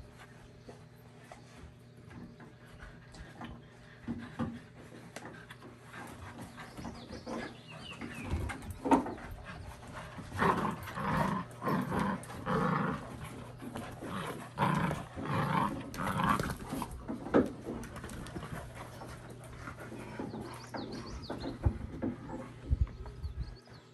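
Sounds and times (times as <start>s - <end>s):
dogs growling in play: 2.9s - 23.4s.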